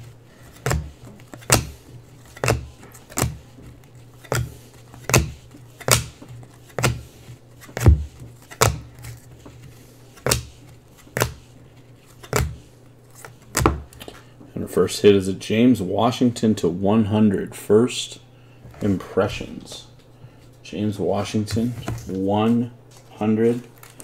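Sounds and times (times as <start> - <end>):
low steady hum: 0.0 - 24.0
trading cards snapping: 0.5 - 3.5, 4.2 - 9.2, 10.2 - 11.4, 12.1 - 14.1.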